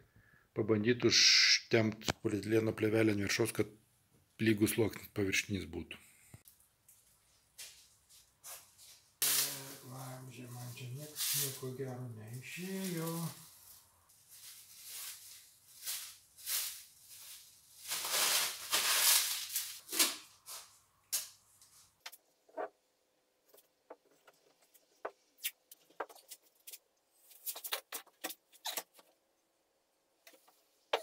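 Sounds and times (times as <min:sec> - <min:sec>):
plastic film crinkling: 0:08.5 - 0:21.4
stretch film unrolling crackles: 0:12.4 - 0:21.8.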